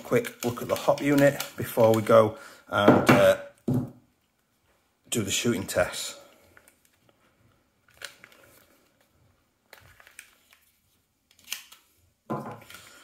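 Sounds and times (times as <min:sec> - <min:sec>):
plastic and metal clicks and scrapes: 0:00.1 - 0:02.2.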